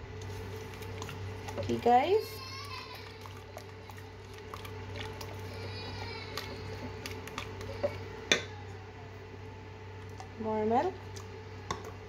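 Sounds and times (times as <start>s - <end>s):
steady low hum: 0.0s - 12.0s
whisk stirring batter in bowl: 0.2s - 8.1s.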